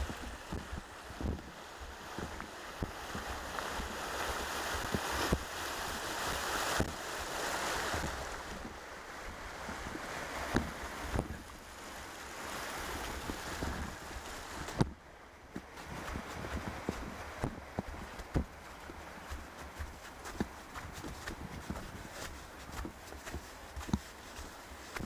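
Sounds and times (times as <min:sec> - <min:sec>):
stream running over stones: 0:00.0 - 0:25.0
wind rumbling on microphone: 0:00.0 - 0:25.0.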